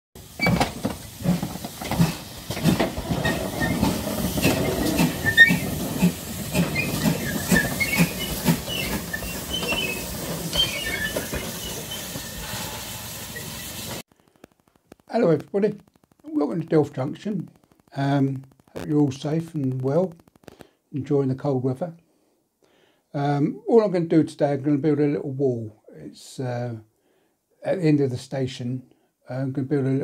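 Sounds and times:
steam locomotive running: 0:00.2 - 0:14.0
steam hissing: 0:00.2 - 0:14.1.

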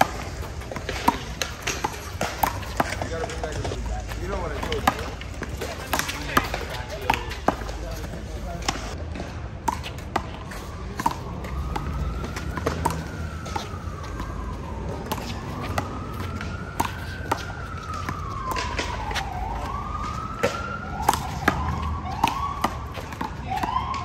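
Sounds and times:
siren wailing: 0:00.0 - 0:08.9, 0:10.1 - 0:24.0.

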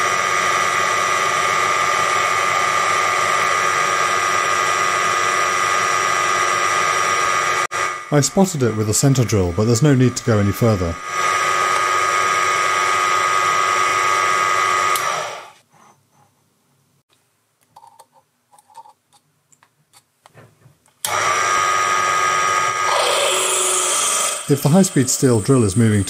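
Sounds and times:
mini lathe whining: 0:21.1 - 0:26.0.

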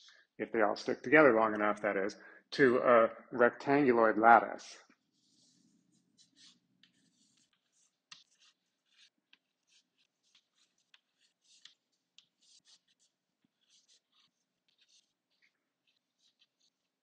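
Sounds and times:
pen scratching strokes: 0:05.0 - 0:17.0.

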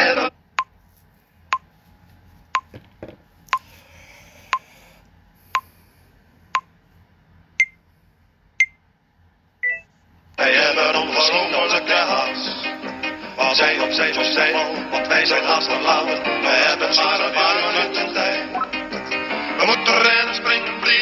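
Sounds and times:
countdown timer beeps: 0:09.6 - 0:09.9.

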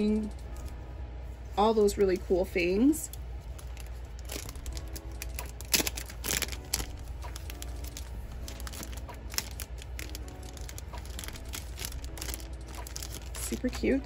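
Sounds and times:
cellophane packet crinkling: 0:03.1 - 0:14.0.

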